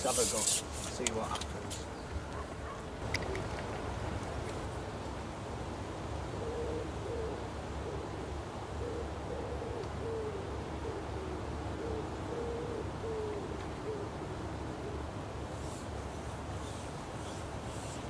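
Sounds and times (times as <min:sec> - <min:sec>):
low wind rumble: 0:01.5 - 0:09.3
dove cooing: 0:02.2 - 0:05.0, 0:06.2 - 0:15.3.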